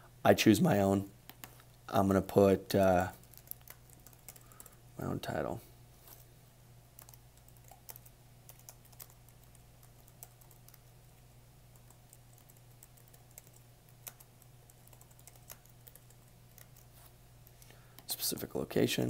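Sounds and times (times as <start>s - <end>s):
low steady hum: 0.0s - 19.0s
typing on computer keyboard: 3.2s - 4.8s, 7.0s - 10.9s, 11.7s - 16.9s.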